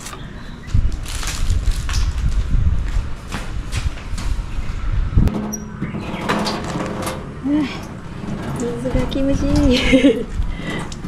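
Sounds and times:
wind buffeting microphone: 0.0 - 11.0
footsteps on concrete floor: 0.1 - 4.8.

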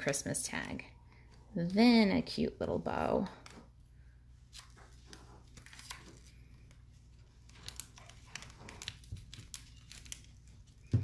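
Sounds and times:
ribbon rustling: 1.2 - 11.0
plastic wrapper crinkles: 4.5 - 11.0.

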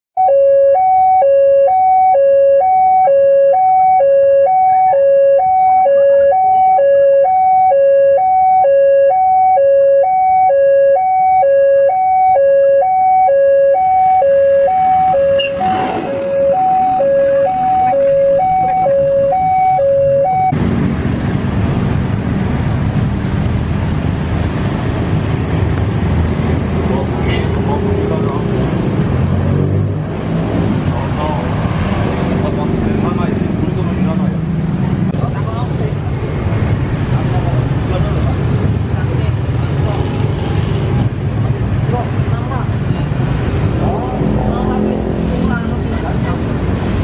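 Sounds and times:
level crossing two-tone alarm: 0.2 - 20.6
car and motorbike engines running: 10.4 - 47.0
rail vehicle rumble: 14.9 - 19.5, 20.5 - 47.0.

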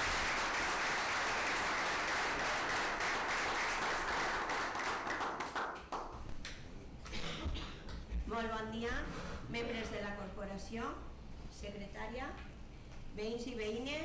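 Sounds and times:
small crowd applauding: 0.0 - 6.6.

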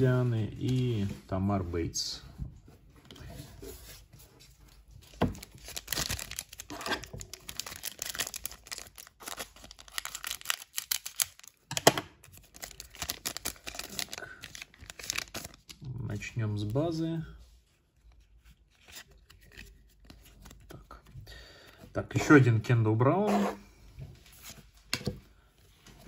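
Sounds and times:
foil wrapper crinkling: 5.4 - 15.7.

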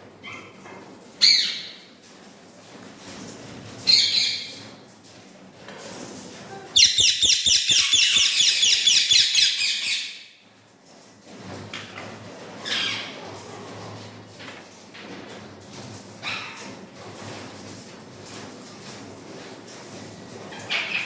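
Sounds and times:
parakeets calling: 6.8 - 10.2.

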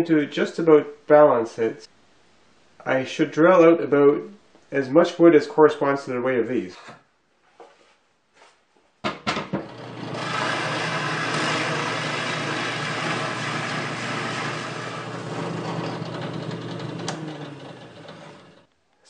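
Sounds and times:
knocks: 9.0 - 9.7
drill press drilling wood: 9.2 - 18.7.

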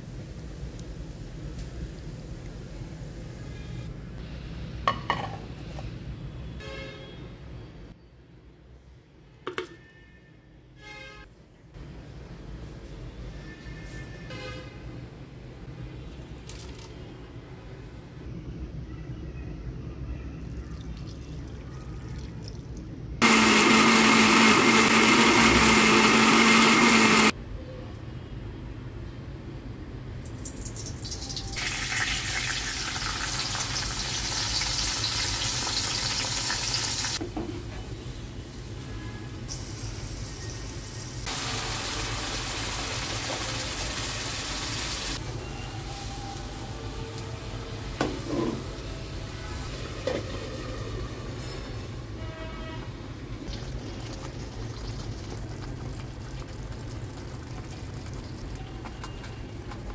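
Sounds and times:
electric blender motor running: 23.2 - 27.3
chicken sizzling in hot oil: 30.3 - 37.2, 39.5 - 48.9.

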